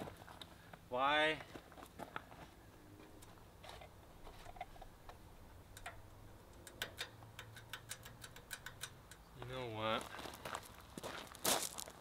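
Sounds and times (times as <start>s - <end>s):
light metal clicking: 4.5s - 9.5s.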